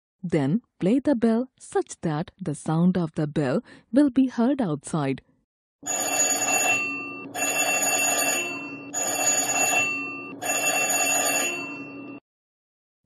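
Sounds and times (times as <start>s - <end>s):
electric bell ringing: 5.8s - 12.2s.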